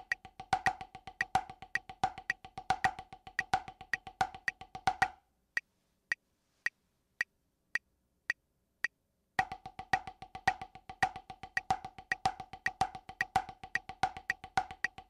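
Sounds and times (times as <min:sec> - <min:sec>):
metronome clicking: 0:00.0 - 0:05.1, 0:09.4 - 0:15.0.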